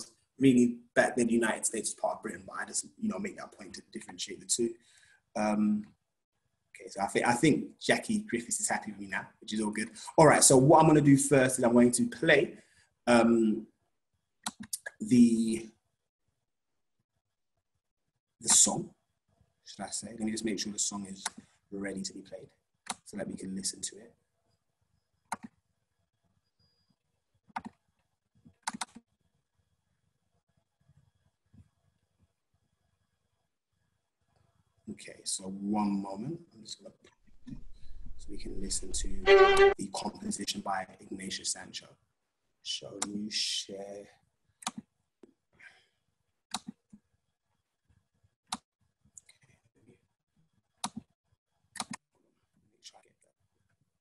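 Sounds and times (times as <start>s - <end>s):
computer mouse clicks: 14.4s - 14.8s, 25.3s - 25.6s, 27.5s - 27.8s, 28.6s - 29.0s, 46.5s - 46.8s, 50.8s - 51.1s, 51.8s - 52.0s.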